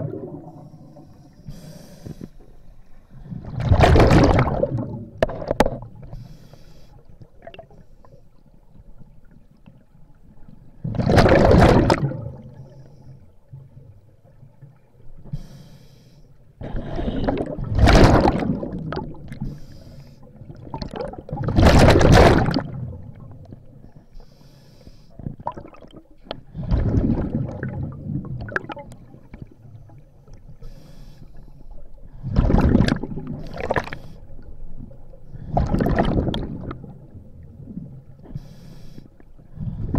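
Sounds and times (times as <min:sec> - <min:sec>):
exhaled bubbles rushing: 0:00.0 - 0:00.9, 0:03.2 - 0:06.0, 0:10.8 - 0:12.5, 0:16.7 - 0:19.4, 0:20.4 - 0:23.4, 0:25.4 - 0:29.6, 0:32.1 - 0:34.0, 0:35.4 - 0:38.1
regulator inhalation hiss: 0:00.7 - 0:02.4, 0:06.2 - 0:07.0, 0:15.3 - 0:16.3, 0:24.2 - 0:25.2, 0:30.6 - 0:31.6, 0:38.3 - 0:39.2.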